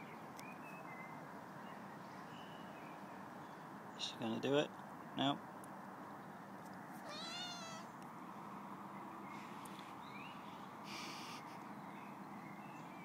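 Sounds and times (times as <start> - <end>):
faint outdoor hum: 0.0 - 13.0
cat meowing: 7.0 - 7.9.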